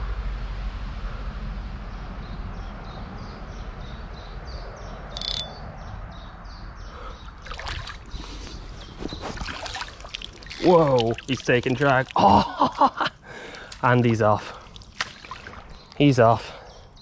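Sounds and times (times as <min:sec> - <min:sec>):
low outdoor rumble: 0:00.0 - 0:16.0
high chirping call: 0:05.1 - 0:05.7.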